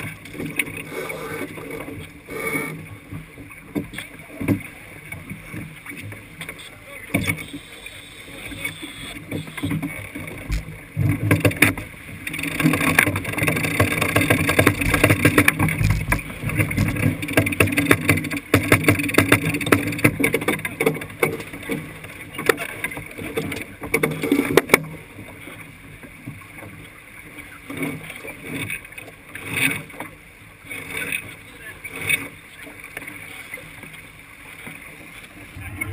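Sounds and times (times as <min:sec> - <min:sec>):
water rushing along hull: 0:00.0 - 0:35.9
wind on microphone: 0:12.2 - 0:17.8, 0:35.4 - 0:35.9
deck gear knocks and rattles: 0:12.4 - 0:21.8.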